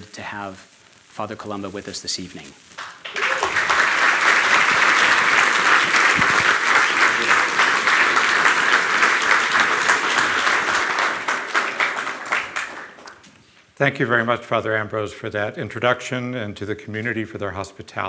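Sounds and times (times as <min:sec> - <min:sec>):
audience applauding: 0:02.8 - 0:13.3.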